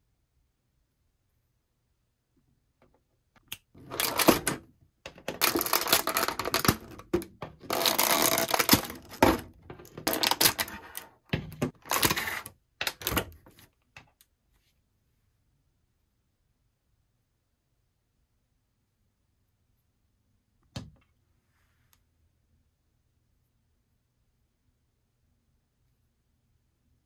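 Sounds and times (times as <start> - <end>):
plastic packaging crinkling: 5.2 - 11.0, 11.7 - 13.1.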